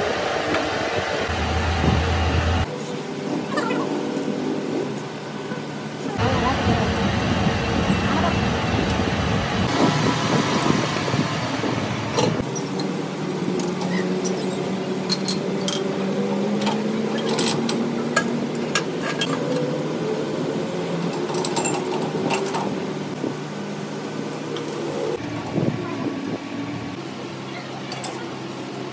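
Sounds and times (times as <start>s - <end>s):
steady machine hum: 0.0s - 3.3s.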